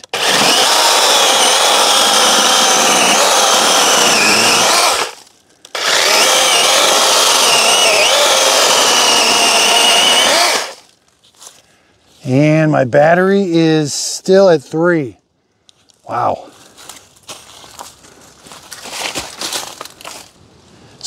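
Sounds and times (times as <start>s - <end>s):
chainsaw cutting log: 0.0s - 10.8s.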